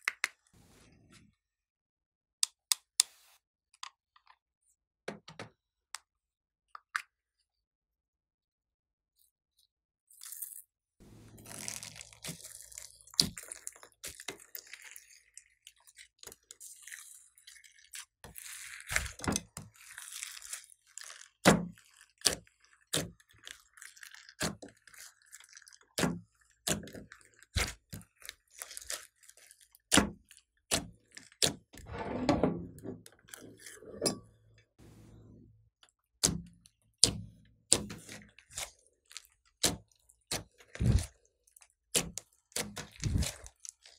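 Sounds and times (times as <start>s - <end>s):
slime squelching: 11.2s - 32.0s, 37.0s - 43.9s.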